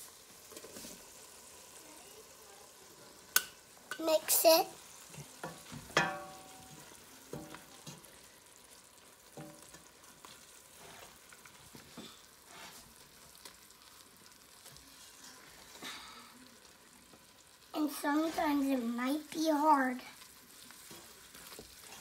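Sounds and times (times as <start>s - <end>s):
faint sizzle: 0.0s - 22.0s
wooden spoon stirring in pot: 3.3s - 22.0s
spoon knocking against pot: 5.4s - 6.6s.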